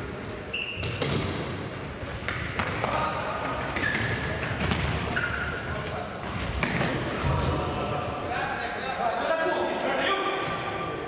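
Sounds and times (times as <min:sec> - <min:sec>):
shoes squeaking on floor: 0:00.5 - 0:01.2, 0:02.1 - 0:04.4, 0:05.1 - 0:06.8.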